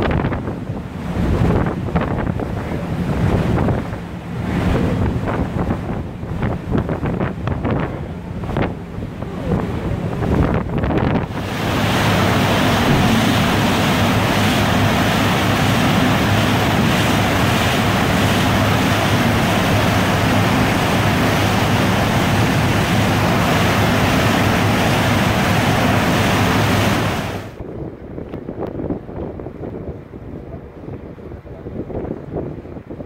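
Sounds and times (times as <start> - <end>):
wind and water rushing: 0.0 - 33.0
low engine drone: 2.2 - 27.6.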